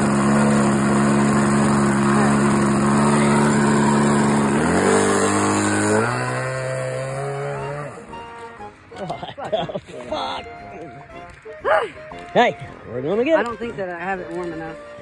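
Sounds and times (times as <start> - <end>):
model plane engine running: 0.0 - 8.8.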